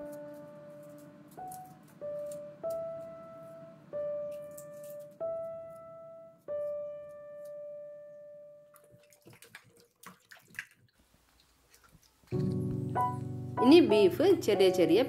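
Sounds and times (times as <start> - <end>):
soft piano music: 0.0 - 9.0, 12.3 - 15.0
water splashing in a steel bowl: 8.7 - 12.6.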